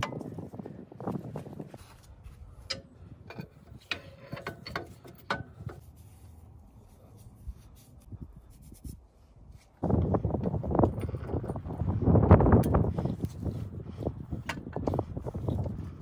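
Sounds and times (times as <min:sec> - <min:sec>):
light metallic clicks and knocks: 0:02.6 - 0:05.8
gloved fingers rubbing: 0:05.6 - 0:09.8.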